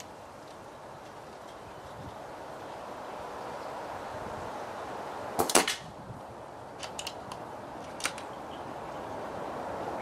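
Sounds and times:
air rifle shot: 5.4s - 5.9s.

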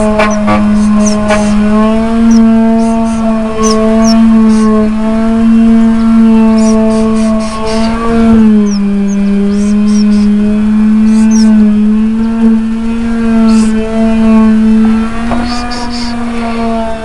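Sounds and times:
motor drone with humming: 0.0s - 17.0s
faint high chirps: 2.2s - 4.8s, 8.6s - 10.3s, 11.0s - 11.6s, 15.4s - 16.2s.

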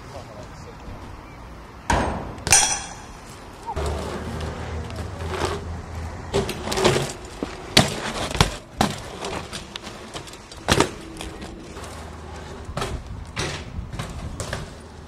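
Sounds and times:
bike frame rattling: 2.6s - 15.0s
bike tyres rolling on tarmac: 3.2s - 15.0s
bike knocks and clacks: 6.3s - 15.0s.

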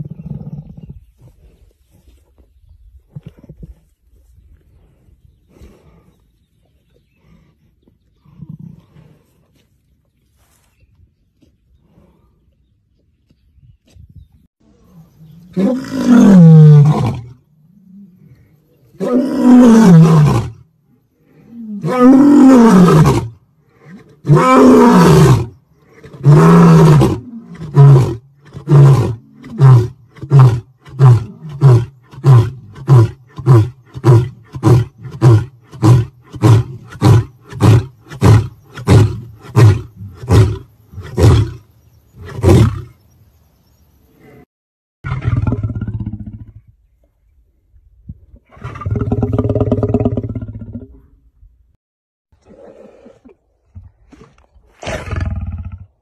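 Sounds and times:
lion roaring: 14.8s - 20.6s, 21.4s - 41.6s.

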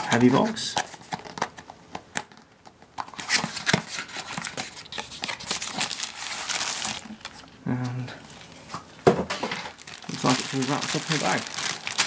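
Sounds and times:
plastic bag crinkling: 4.3s - 7.5s, 9.4s - 12.0s.

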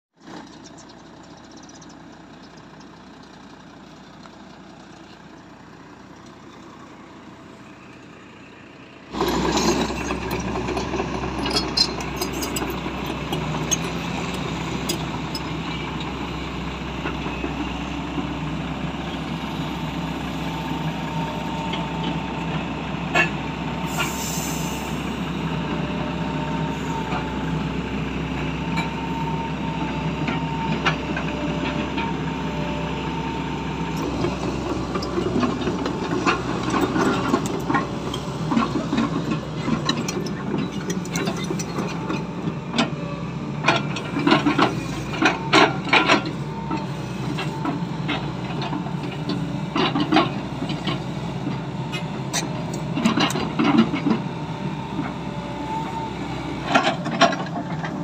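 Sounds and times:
excavator diesel engine running: 0.2s - 58.0s.

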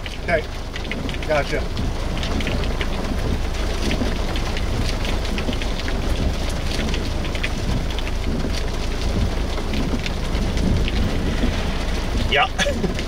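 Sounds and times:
rain pattering on a vehicle: 0.0s - 13.0s
low rumble: 6.6s - 13.0s.

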